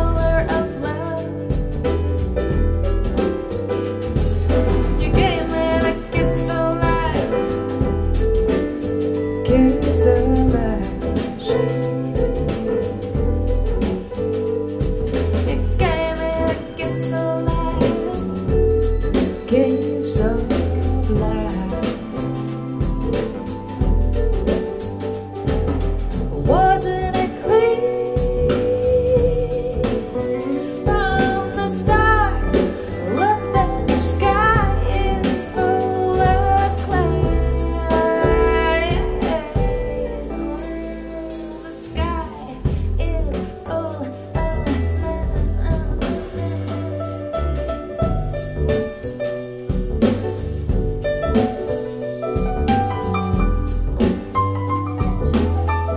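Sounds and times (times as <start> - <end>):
woman singing: 0.0 - 1.9, 4.5 - 12.5, 15.4 - 23.1, 26.4 - 47.3
guitar: 0.0 - 55.9
live band playing: 0.0 - 55.9.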